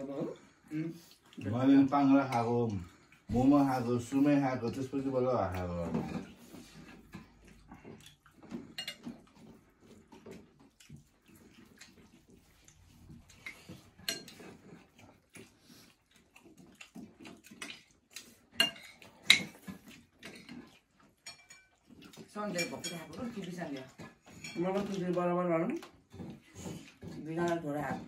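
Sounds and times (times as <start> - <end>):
chewing and lip-smacking: 0.1 - 28.0
fingers clinking on metal plates: 21.2 - 23.5.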